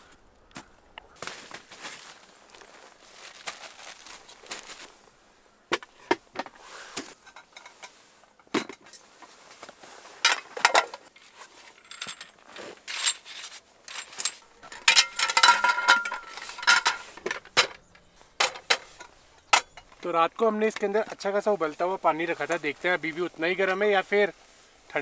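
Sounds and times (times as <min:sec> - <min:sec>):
rattling clatter: 0:11.7 - 0:20.0
metal table clicks and clinks: 0:13.9 - 0:19.9.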